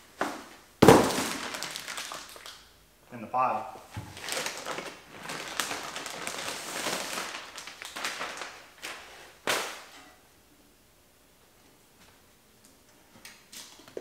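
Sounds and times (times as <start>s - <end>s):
plastic bag crinkling: 0.8s - 2.6s, 4.0s - 9.8s.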